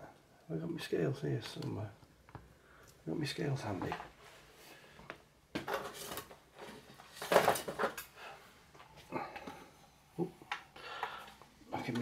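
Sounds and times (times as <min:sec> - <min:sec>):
knocks and rustles: 0:05.5 - 0:08.1
objects clattering: 0:05.6 - 0:08.2.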